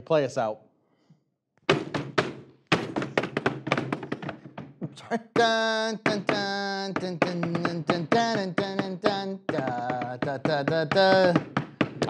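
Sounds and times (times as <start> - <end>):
hands drumming on tabletop: 1.7 - 12.0
person singing long notes: 5.3 - 11.5.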